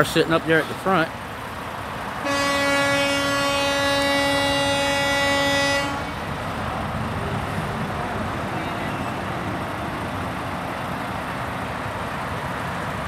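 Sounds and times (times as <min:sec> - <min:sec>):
idling traffic: 0:00.0 - 0:13.0
vehicle horn long blast: 0:02.2 - 0:06.3.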